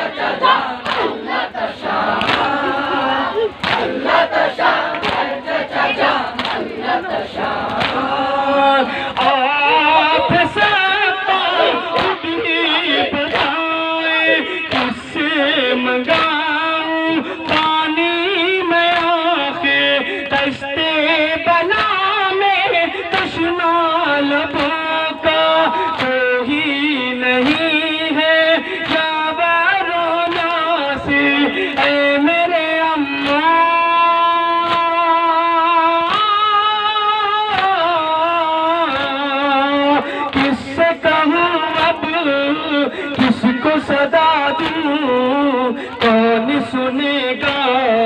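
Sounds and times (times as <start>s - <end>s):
crowd singing lament in unison: 0.0s - 48.0s
people beating their chests: 0.0s - 48.0s
hands slapping chests: 0.4s - 6.8s, 7.6s - 8.2s, 9.1s - 9.4s, 11.6s - 13.7s, 14.7s - 15.0s, 17.4s - 17.8s, 34.6s - 34.9s, 37.5s - 37.8s, 44.6s - 44.9s.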